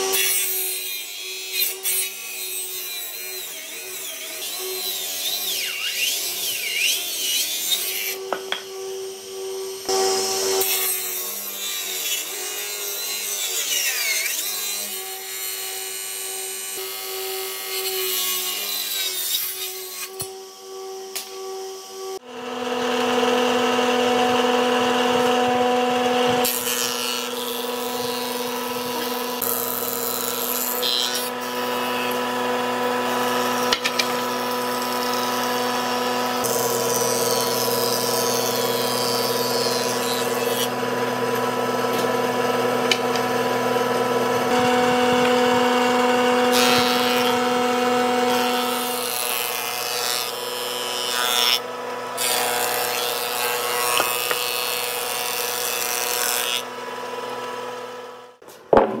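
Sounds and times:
planer machine hum: 22.2s - 52.4s
cutterhead shaving wood: 22.2s - 57.9s.

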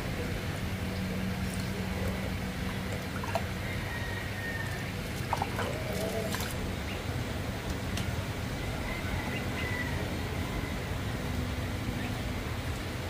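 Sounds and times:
steady low hum: 0.0s - 13.0s
ducklings dabbling in water: 0.6s - 7.0s
faint water splashes: 0.8s - 6.6s.

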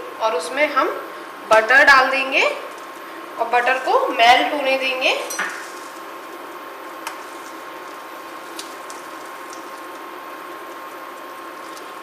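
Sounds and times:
butter sizzling in a pan: 5.6s - 12.0s.

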